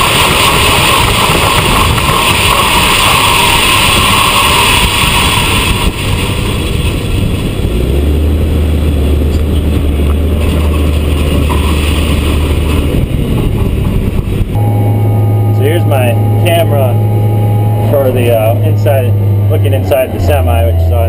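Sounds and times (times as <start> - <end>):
grain pouring from auger: 0.0 - 6.4
low steady hum: 14.4 - 21.0.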